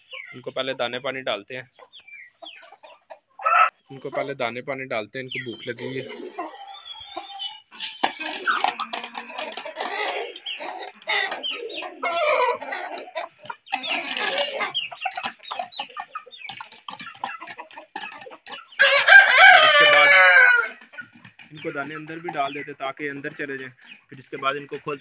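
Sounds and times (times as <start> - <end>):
chickens clucking: 0.0 - 25.0
rooster crowing: 18.8 - 20.8.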